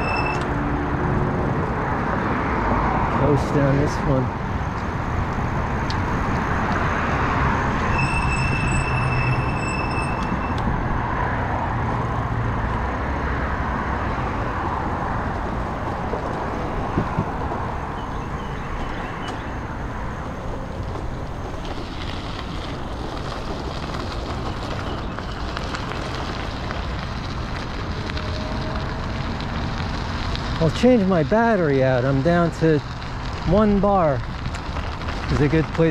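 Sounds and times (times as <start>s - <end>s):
bicycle tyre noise: 0.0s - 35.9s.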